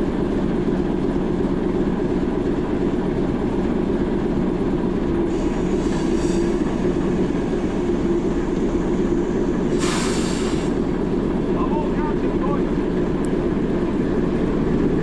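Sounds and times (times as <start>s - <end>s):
diesel locomotive engine idling: 0.0s - 15.0s
short air hiss: 5.3s - 6.8s, 9.7s - 10.8s.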